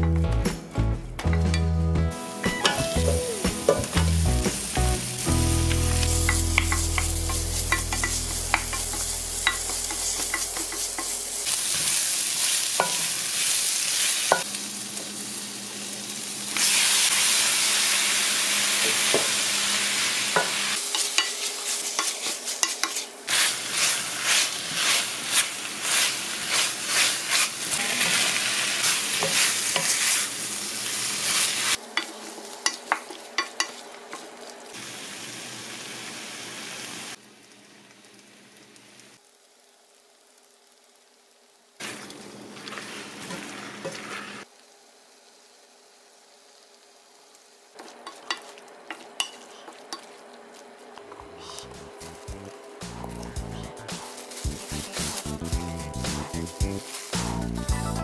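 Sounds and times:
oil sizzling in a frying pan: 1.5 - 58.0
spatula scraping pan: 20.8 - 30.3.

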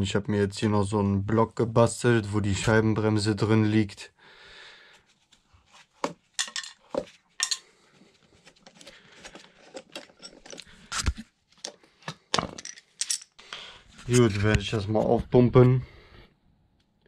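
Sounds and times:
metal clamps clinking: 6.4 - 6.8, 7.4 - 7.7, 9.6 - 10.8, 11.6 - 13.4.

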